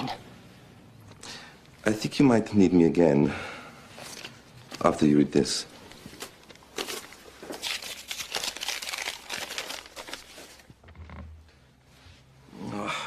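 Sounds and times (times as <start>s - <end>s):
paper rustling and crinkling: 5.9s - 11.2s.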